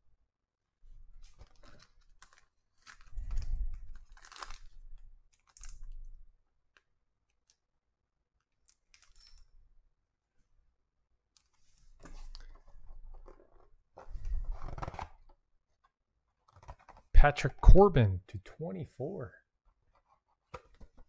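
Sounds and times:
plastic sleeve crinkling: 0:01.2 - 0:05.9.

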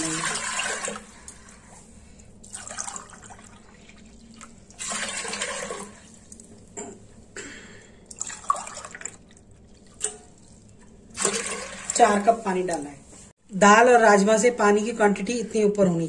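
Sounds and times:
water pouring into a pot: 0:00.0 - 0:01.4, 0:02.4 - 0:06.5, 0:08.1 - 0:12.4.

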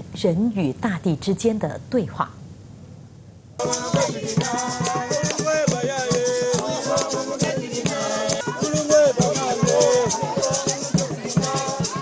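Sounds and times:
shaken rattles: 0:03.6 - 0:12.0
voices singing together: 0:03.6 - 0:12.0.

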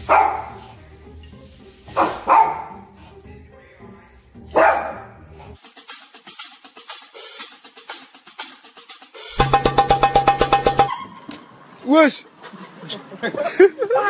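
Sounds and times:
small dog barking: 0:00.0 - 0:00.6, 0:02.0 - 0:02.8, 0:04.5 - 0:05.1
music with quick drum beat: 0:05.6 - 0:10.9.

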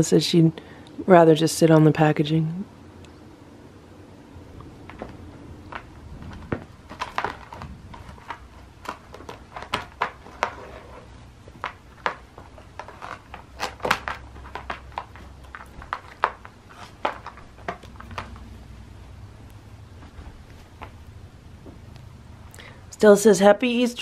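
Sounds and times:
cardboard crackling under cat claws: 0:04.6 - 0:18.8.

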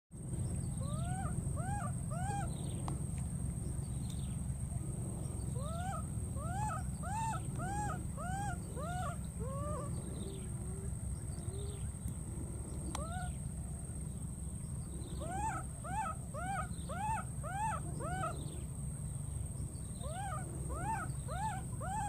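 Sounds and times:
baby monkey coo calls: 0:00.6 - 0:02.8, 0:05.5 - 0:10.9, 0:12.9 - 0:13.4, 0:15.1 - 0:18.7, 0:19.9 - 0:22.0.

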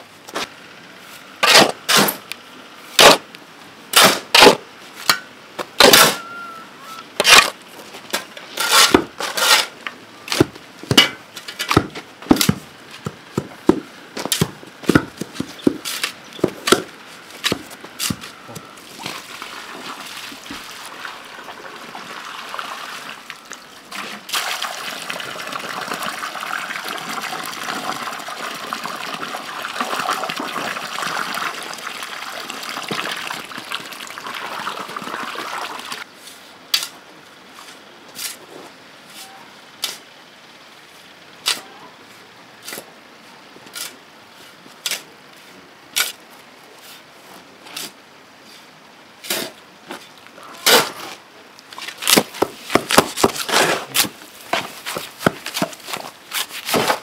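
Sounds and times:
shovels scraping concrete floor: 0:01.4 - 0:02.2, 0:07.2 - 0:12.6, 0:17.4 - 0:18.4, 0:37.6 - 0:40.0, 0:46.8 - 0:48.6, 0:49.2 - 0:51.2, 0:51.8 - 0:57.0
water pouring from watering can: 0:24.3 - 0:36.0.

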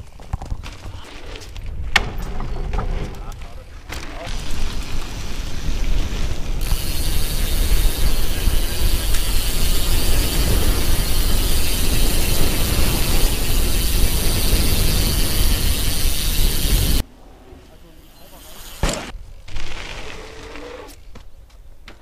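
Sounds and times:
wind rumble: 0:04.3 - 0:17.8
bicycle freehub ratcheting: 0:06.6 - 0:17.0.

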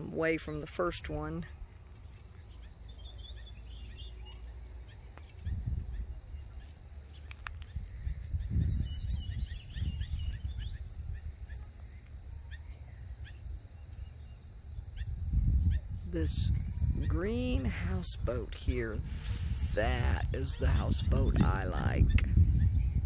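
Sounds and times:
faint bird chirps: 0:02.4 - 0:14.4
wind rumbling on microphone: 0:04.6 - 0:23.0.

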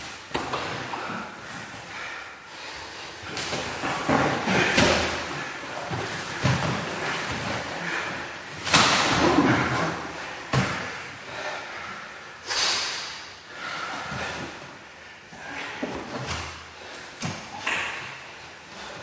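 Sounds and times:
bodies thudding and scuffling: 0:03.3 - 0:10.9.

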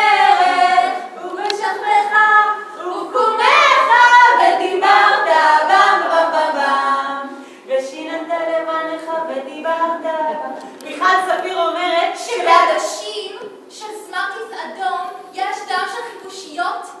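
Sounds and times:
group singing a cappella: 0:00.0 - 0:13.0.

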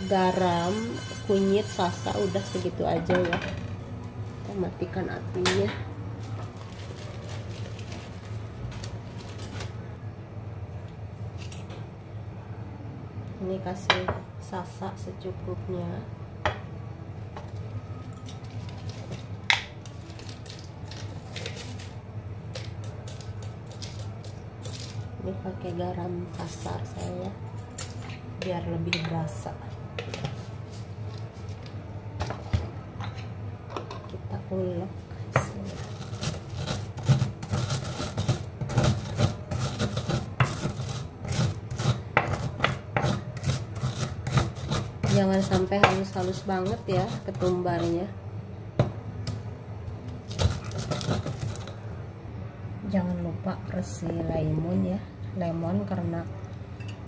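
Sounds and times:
stone pestle grinding in mortar: 0:00.0 - 0:02.9, 0:35.4 - 0:48.1, 0:50.3 - 0:51.7
low steady hum: 0:00.0 - 0:57.0.

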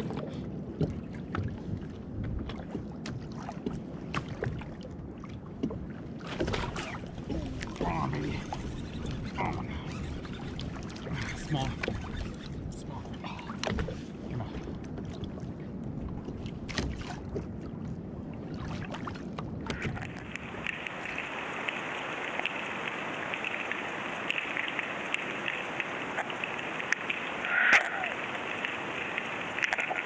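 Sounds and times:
wind on microphone: 0:00.0 - 0:30.0
steady underwater hiss: 0:20.0 - 0:30.0.

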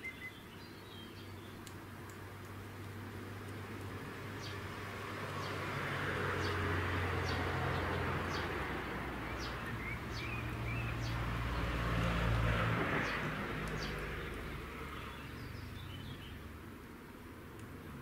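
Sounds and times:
road traffic rumble: 0:00.0 - 0:18.0.

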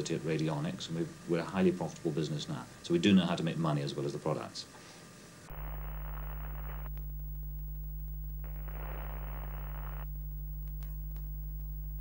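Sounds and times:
static hiss: 0:00.0 - 0:12.0
low electronic hum: 0:05.5 - 0:12.0.

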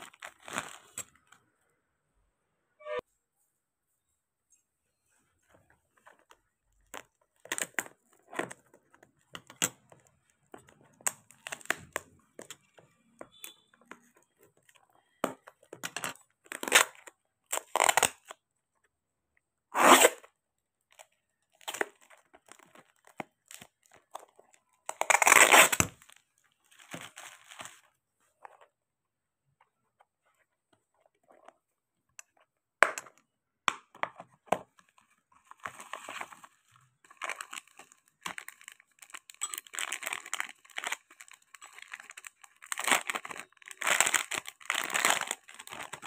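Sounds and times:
plastic crinkling: 0:00.0 - 0:01.4, 0:34.8 - 0:46.0
packing tape ripping: 0:16.5 - 0:18.3, 0:19.8 - 0:20.3, 0:24.9 - 0:26.0.

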